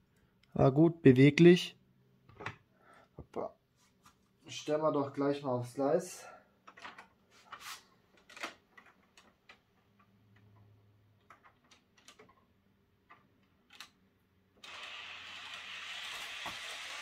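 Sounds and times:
plastic clicks of model wagon: 13.1s - 14.0s.

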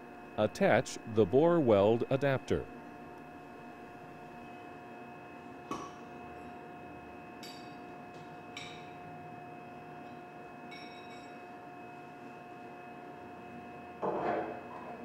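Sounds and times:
faint hum: 0.0s - 10.2s.

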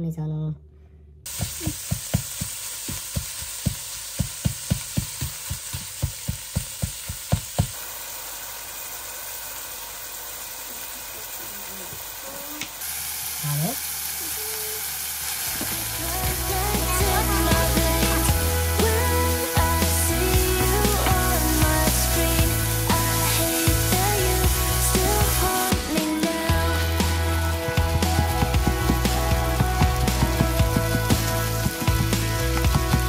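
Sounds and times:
spatula knocking in frying pan: 1.3s - 7.8s
meat sizzling: 1.3s - 33.0s
background music: 15.5s - 33.0s.

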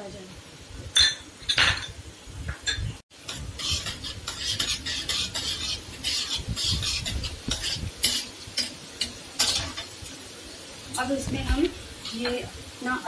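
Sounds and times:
spices sizzling in oil: 0.0s - 13.0s
spoon scraping and clinking pan: 2.6s - 10.0s.

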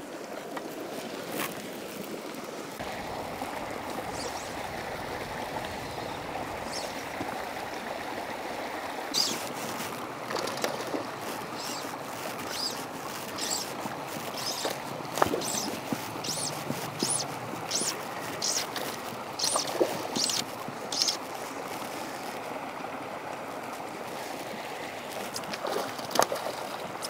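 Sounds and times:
water lapping on rocky shore: 0.0s - 27.0s
faint high chirps: 4.1s - 4.6s, 5.9s - 7.0s, 9.1s - 9.4s, 11.6s - 13.7s, 14.3s - 14.7s, 15.4s - 18.7s, 19.4s - 21.2s.

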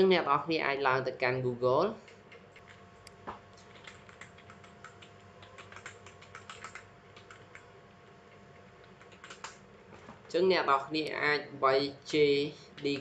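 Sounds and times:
typing on a computer keyboard: 3.6s - 7.7s, 8.3s - 9.6s.

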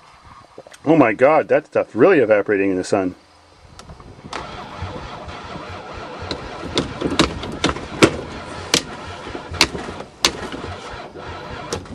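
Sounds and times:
van engine cranking and sputtering: 3.9s - 11.9s
sharp engine pops: 6.1s - 11.9s.

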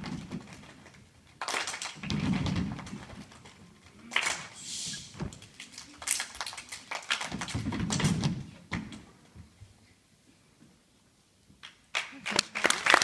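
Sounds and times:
children clapping hands: 1.4s - 2.1s, 5.6s - 7.6s, 11.6s - 13.0s.

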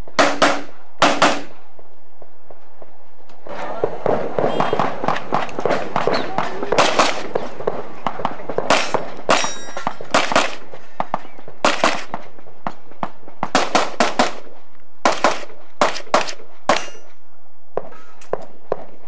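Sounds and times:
rapid handgun fire: 0.2s - 1.6s, 4.0s - 10.7s, 11.6s - 12.3s, 13.4s - 17.0s.

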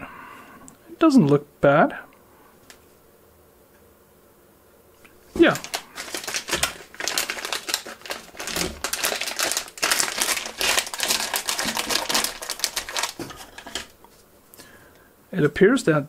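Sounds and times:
plastic bag crinkling: 5.2s - 14.2s.

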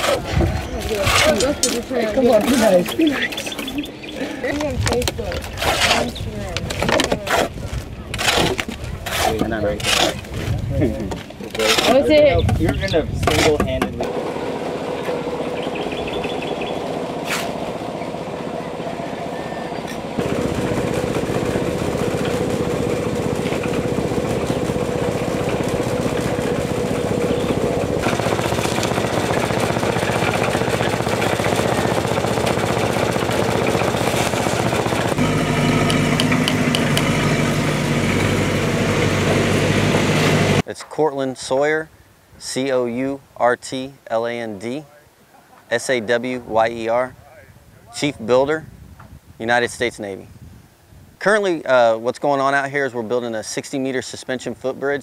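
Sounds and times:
deep engine hum: 14.0s - 40.6s
engine running: 14.0s - 40.6s.

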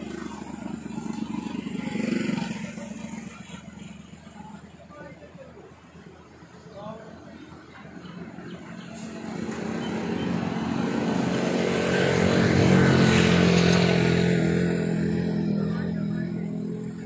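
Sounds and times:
vehicle driving past: 7.6s - 17.0s.

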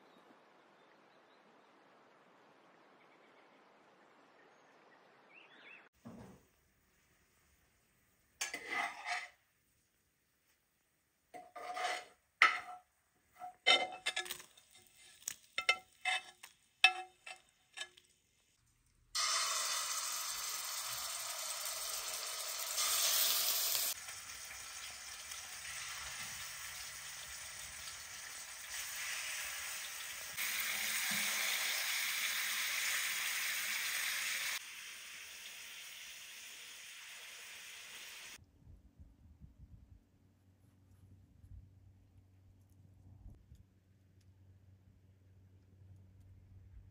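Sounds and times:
metal ladle scraping metal bowls: 8.4s - 9.4s, 11.4s - 18.0s
chicken sizzling in a pan: 19.2s - 38.4s.

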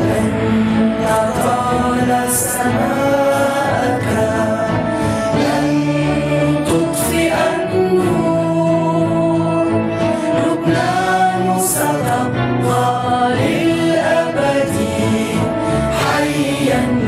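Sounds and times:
instrumental backing: 0.0s - 17.0s.

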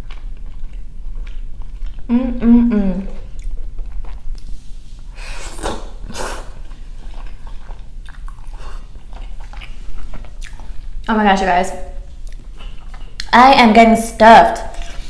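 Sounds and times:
chewing with wet mouth clicks: 0.0s - 2.1s, 3.3s - 4.5s, 6.6s - 11.1s, 12.0s - 13.4s, 14.7s - 15.0s
noodle slurps: 5.2s - 7.6s.

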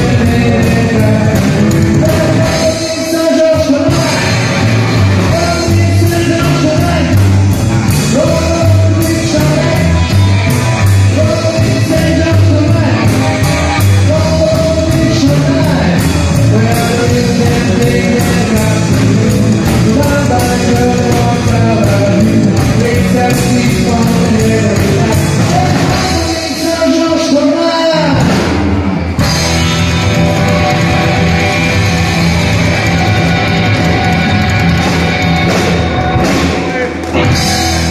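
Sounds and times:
double bass walking line: 0.0s - 27.0s, 28.0s - 37.9s
drum kit cymbal beat: 0.0s - 27.1s, 28.2s - 37.9s
person singing: 0.0s - 28.6s
electric guitars: 0.0s - 37.9s.

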